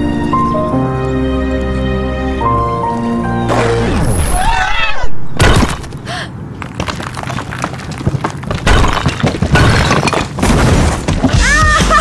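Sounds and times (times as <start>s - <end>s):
falling rubble: 5.3s - 11.8s
brick wall crashing: 6.6s - 11.5s.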